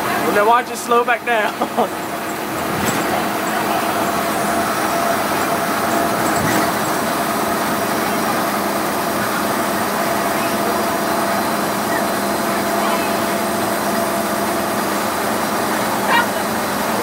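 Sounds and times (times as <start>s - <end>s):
bus diesel engine drone: 0.0s - 17.0s
road noise: 0.0s - 17.0s.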